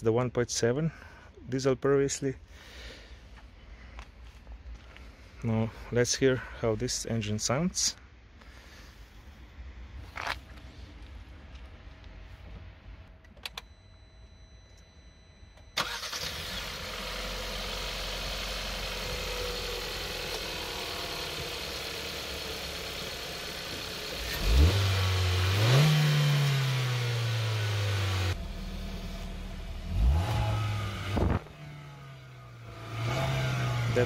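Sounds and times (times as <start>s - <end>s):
car engine starting and idling: 15.6s - 34.0s
engine revving: 23.8s - 34.0s.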